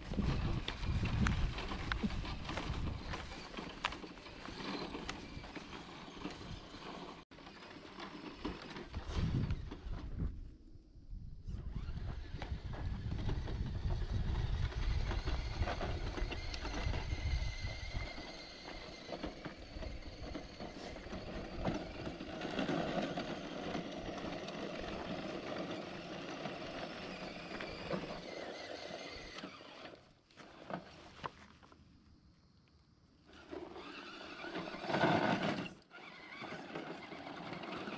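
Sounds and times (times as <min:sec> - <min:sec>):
wind rumble on microphone: 0:00.0 - 0:04.0, 0:08.9 - 0:25.4
tyres crunching on gravel: 0:00.0 - 0:10.2, 0:11.7 - 0:32.0
toy car motor whine: 0:00.1 - 0:10.3, 0:11.4 - 0:31.0, 0:33.2 - 0:37.9.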